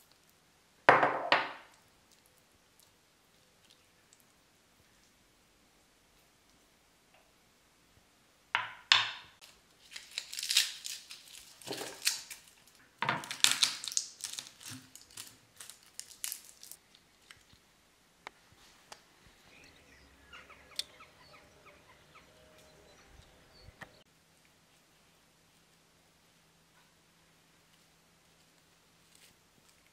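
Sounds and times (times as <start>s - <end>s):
garlic skins crackling and tearing: 9.4s - 17.6s.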